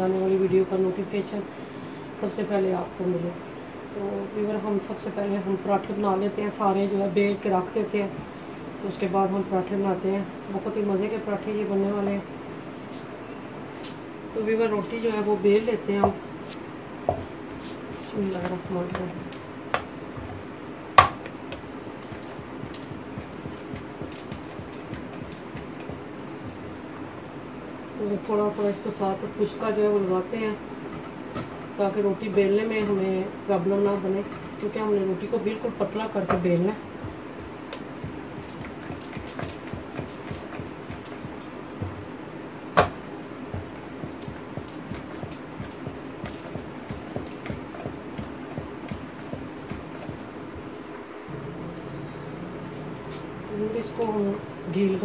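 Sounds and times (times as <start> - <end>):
rolling pin rolling dough: 15.1 - 26.9, 30.9 - 42.2, 42.8 - 50.8.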